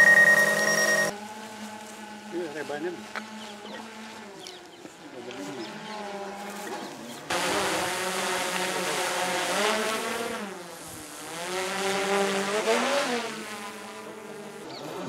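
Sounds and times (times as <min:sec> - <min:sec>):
quadcopter drone buzzing: 0:00.0 - 0:15.0.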